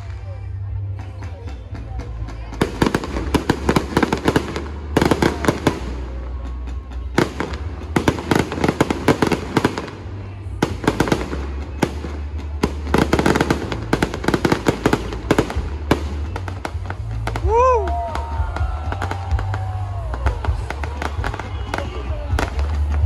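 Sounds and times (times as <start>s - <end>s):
music playing: 0.0s - 23.0s
fireworks crackling bangs: 1.0s - 23.0s.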